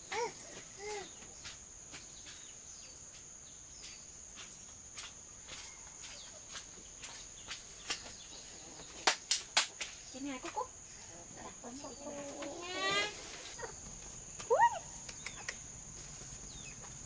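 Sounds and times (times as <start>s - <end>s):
high-pitched insect drone: 12.3s - 13.8s.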